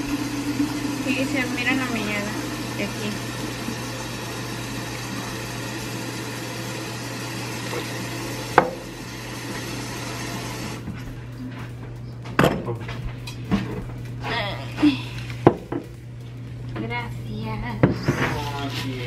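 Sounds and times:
steady low hum: 10.6s - 19.0s.

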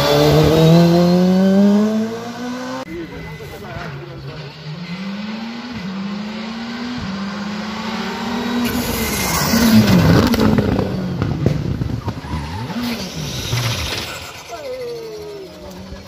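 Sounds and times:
rally car engine accelerating: 0.0s - 16.0s
exhaust cracks: 8.6s - 16.0s.

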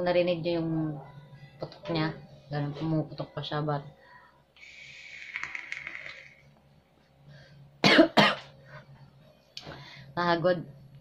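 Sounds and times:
vape hiss with crackling pops: 4.6s - 6.4s
loud coughs: 7.8s - 8.5s.

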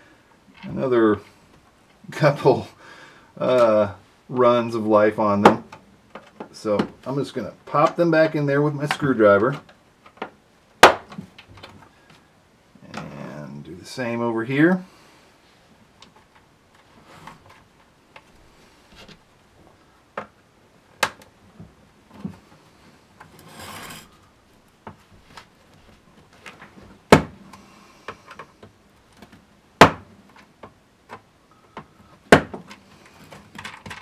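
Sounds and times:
scraping rub: 23.3s - 24.3s.

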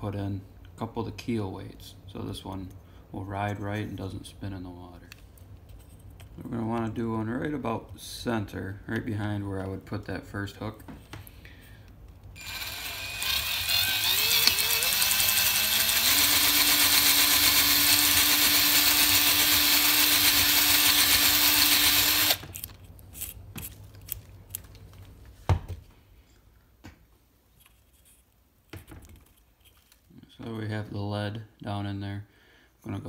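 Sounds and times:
power drill boring into wood: 12.4s - 22.7s.

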